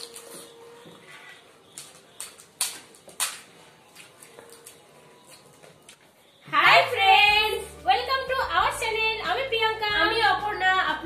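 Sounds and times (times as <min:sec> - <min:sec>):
crisp shells cracking and crunching: 0:00.0 - 0:00.6, 0:01.7 - 0:06.0.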